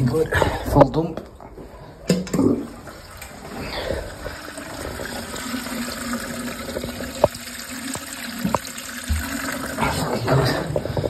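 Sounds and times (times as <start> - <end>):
water draining down a basin: 2.0 - 11.0
water running from a tap: 2.2 - 11.0.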